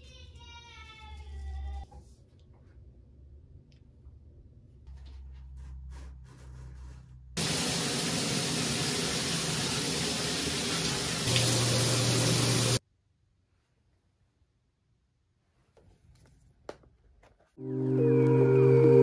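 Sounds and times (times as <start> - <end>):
shower water running: 7.4 - 12.8.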